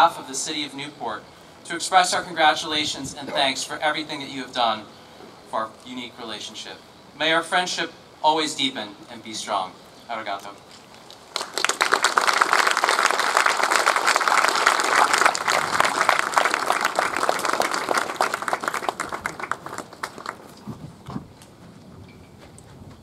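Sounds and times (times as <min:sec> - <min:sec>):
audience applauding: 0:11.3 - 0:20.6.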